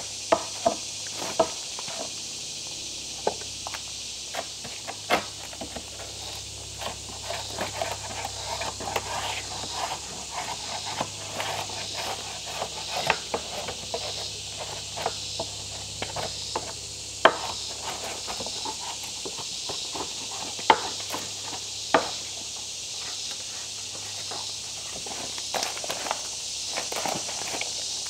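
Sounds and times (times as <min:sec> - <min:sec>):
insects buzzing: 0:00.0 - 0:28.0
hatchet scraping wood: 0:00.3 - 0:02.2, 0:03.2 - 0:22.4.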